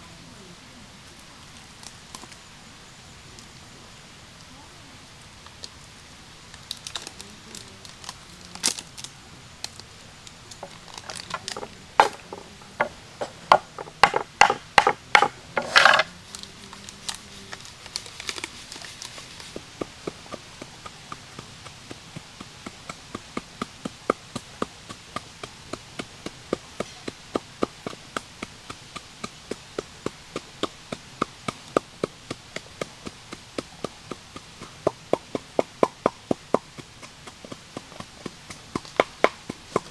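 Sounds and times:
pestle pounding in wooden mortar: 10.6 - 16.2, 19.4 - 39.9
knife chopping on wooden board: 11.0 - 16.1.

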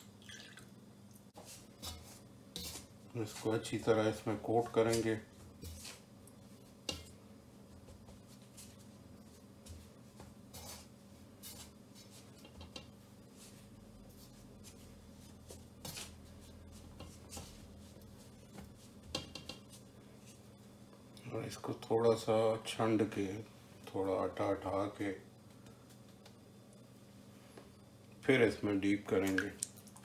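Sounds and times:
low steady hum: 0.0 - 30.0
light scrapes in metal bowl: 1.4 - 3.6.

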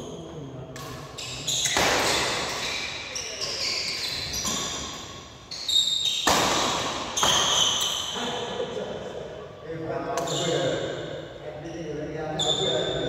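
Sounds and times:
shoes squeaking on court floor: 1.1 - 6.4, 7.0 - 8.2, 10.2 - 11.0, 11.7 - 13.0
racket striking shuttlecock: 6.1 - 7.8.

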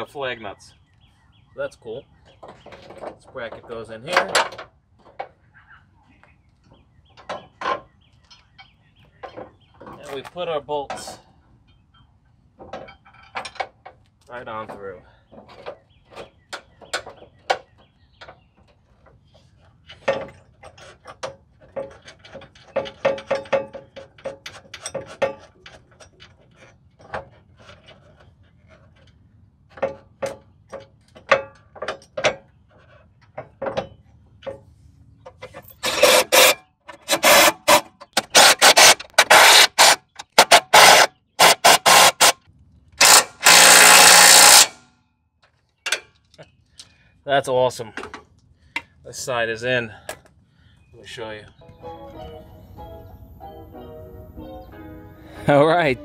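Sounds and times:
metallic clicks of bolts and nuts: 12.6 - 14.0, 19.8 - 28.0
impact driver bursts: 35.8 - 42.4, 43.0 - 44.8.

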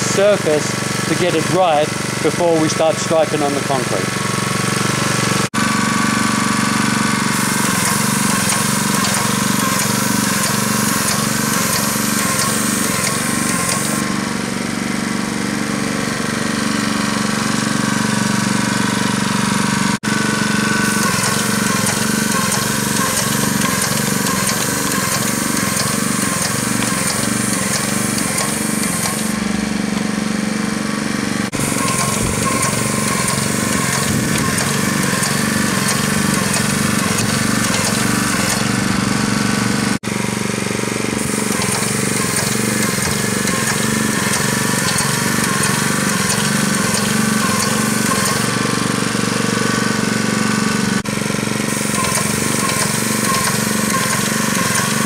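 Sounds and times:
small gasoline engine and pump pulsing: 0.0 - 55.0
high hiss of paint spraying: 7.3 - 14.0, 20.8 - 29.3.

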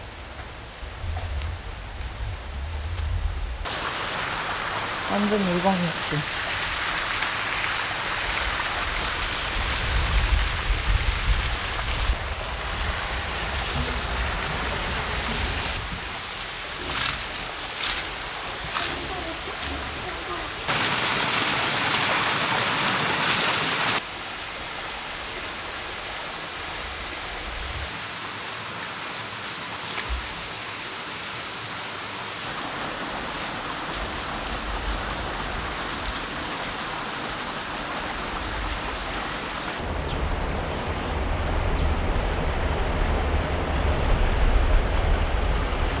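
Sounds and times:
low rumble: 0.2 - 3.6, 39.8 - 46.0
stream water rushing: 3.6 - 40.1.

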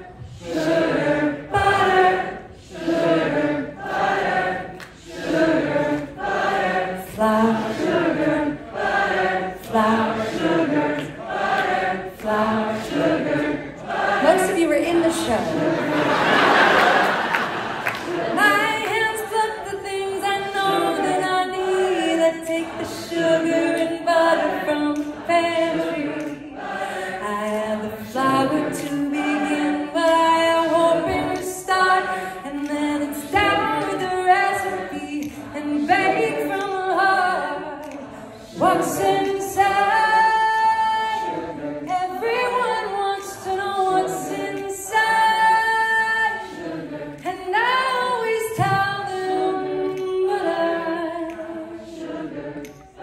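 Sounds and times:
audience singing along: 0.0 - 53.0
woman singing into microphone: 18.4 - 46.6, 47.2 - 52.1.

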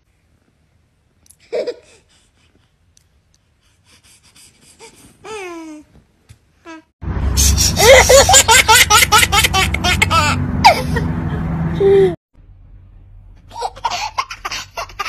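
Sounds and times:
baby laughing hard: 7.6 - 11.1, 13.5 - 15.0.

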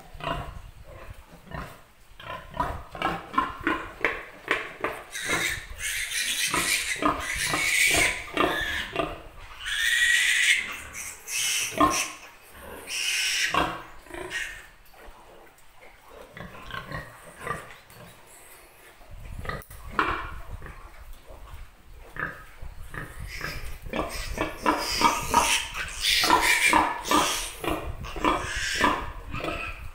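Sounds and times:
piglet squealing: 5.1 - 9.0, 9.6 - 12.2, 12.8 - 14.7, 23.2 - 29.8
piglet grunting: 5.1 - 14.6, 23.0 - 29.9.

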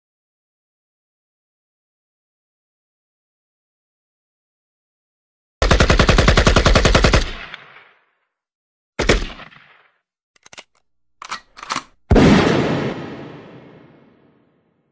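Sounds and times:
automatic gunfire burst: 5.6 - 7.7, 12.1 - 13.2
short clicks: 10.4 - 12.0
single gunshot: 12.1 - 14.3.

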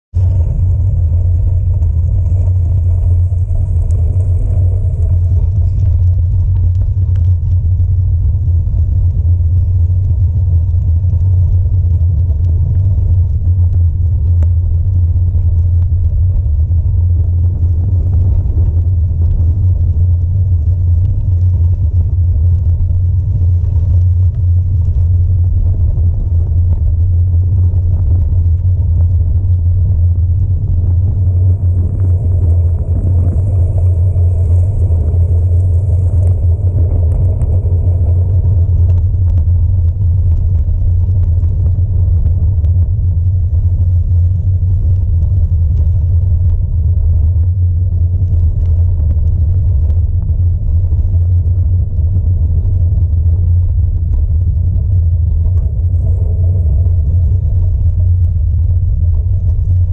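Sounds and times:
bicycle rolling on gravel: 0.2 - 8.5, 25.0 - 42.1
faint ticks and rattles: 0.2 - 59.9.

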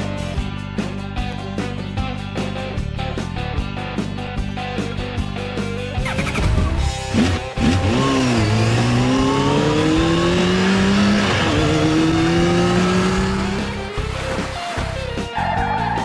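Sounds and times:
quad bike engine revving: 6.0 - 14.6.

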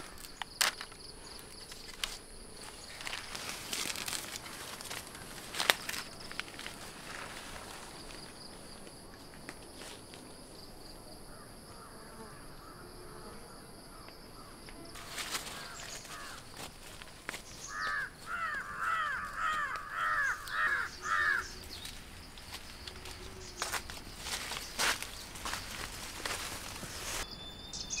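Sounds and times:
rustling in vegetation: 0.0 - 11.0, 14.8 - 27.3
high insect drone: 0.0 - 28.0
crow cawing: 11.3 - 12.9, 14.4 - 16.5, 17.6 - 21.8.

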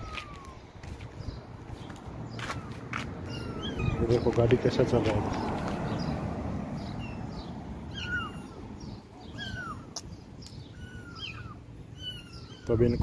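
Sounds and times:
car passing: 1.4 - 9.9.

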